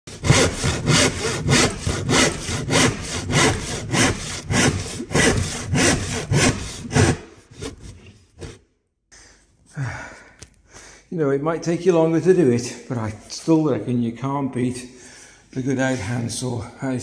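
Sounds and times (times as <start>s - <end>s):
hand saw cutting plywood: 0.1s - 8.6s.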